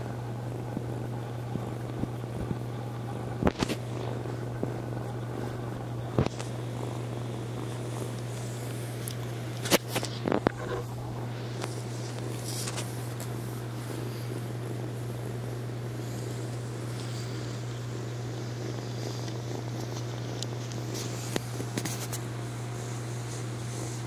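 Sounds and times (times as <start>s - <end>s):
kitten purring: 0.0s - 24.0s
fur rubbing against microphone: 9.7s - 17.7s, 18.7s - 24.0s.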